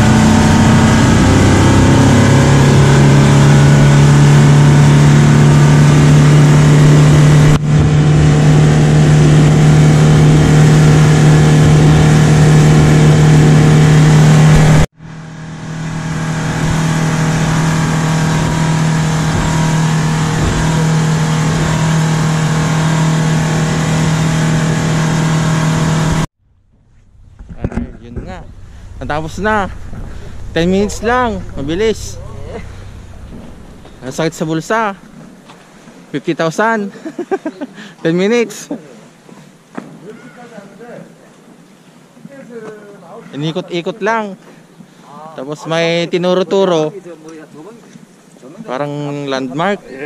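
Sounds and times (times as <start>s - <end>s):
speedboat engine running hard: 0.0s - 26.3s, 27.1s - 35.3s
rushing noise: 0.0s - 35.4s.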